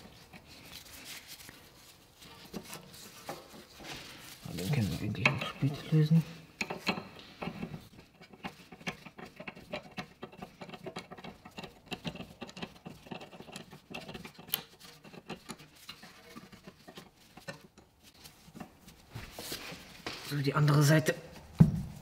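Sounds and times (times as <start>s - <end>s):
spanner clicking and scraping metal: 6.6s - 18.7s.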